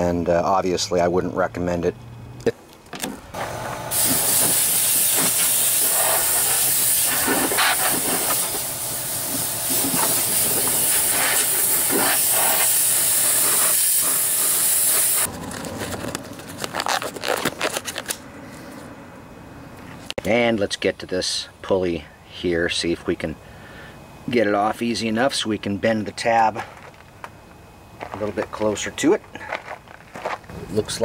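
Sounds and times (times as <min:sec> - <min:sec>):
compressed air blow gun hissing: 0:03.9 - 0:15.3.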